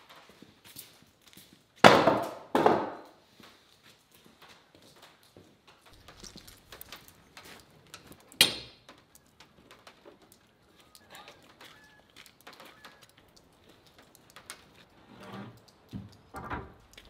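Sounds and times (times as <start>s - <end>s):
footsteps on gravel: 3.3s - 14.9s
faint bird chirps: 10.4s - 13.2s.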